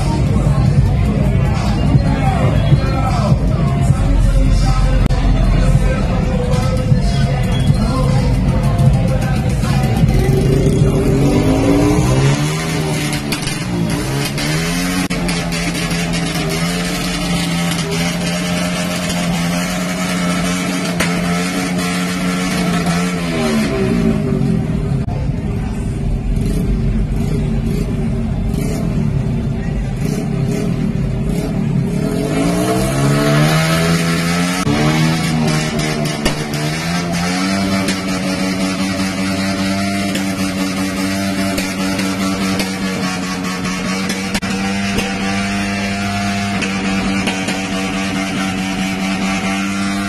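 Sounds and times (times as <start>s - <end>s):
music playing: 0.0s - 25.0s
vehicle engine idling: 0.0s - 32.0s
loud steady hum: 0.0s - 50.0s.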